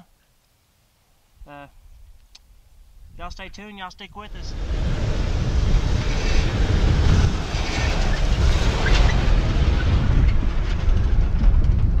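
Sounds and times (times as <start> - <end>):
wind buffeting microphone: 2.8 - 12.0
pickup truck driving past: 4.3 - 10.3.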